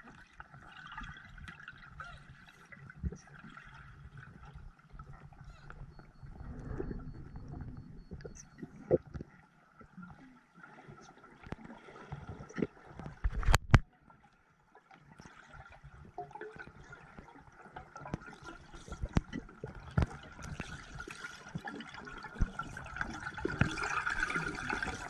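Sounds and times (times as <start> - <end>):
underwater bubbling: 0.0 - 25.0
underwater clicks: 12.5 - 13.9.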